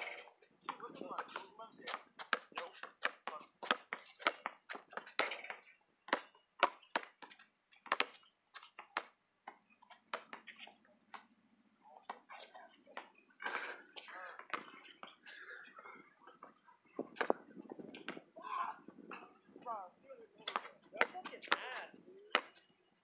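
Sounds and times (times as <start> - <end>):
basketball bouncing on asphalt: 0.0 - 11.3, 16.4 - 18.3, 20.4 - 22.7.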